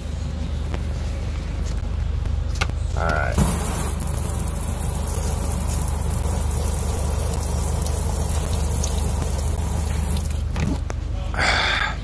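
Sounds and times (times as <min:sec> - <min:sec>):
water running from faucet: 0:03.4 - 0:10.5.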